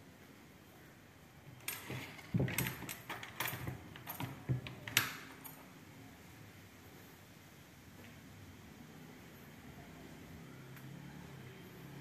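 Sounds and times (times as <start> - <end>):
small clinks and rattles: 1.5 - 5.8.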